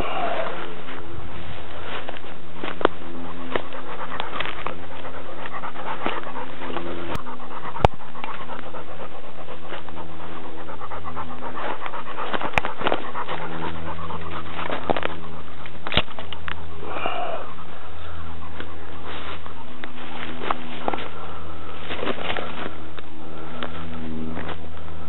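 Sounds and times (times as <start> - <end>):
dog panting: 0.0 - 24.7
brush clicks and rustles: 18.5 - 24.9.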